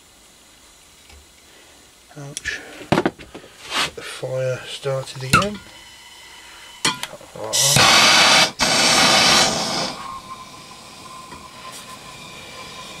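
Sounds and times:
blowtorch gas hissing: 0:00.0 - 0:13.0
blowtorch flame hiss with whistle: 0:03.6 - 0:13.0.

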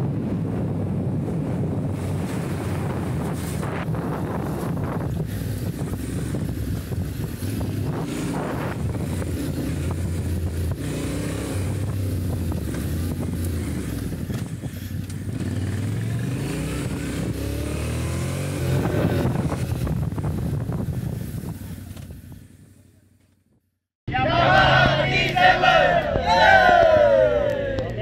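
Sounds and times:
motorcycle engine revving: 0:01.2 - 0:22.7.

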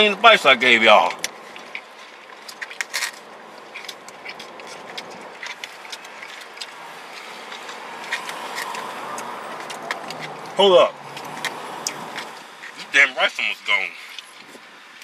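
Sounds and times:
plastic forks scraping containers: 0:00.9 - 0:12.9.

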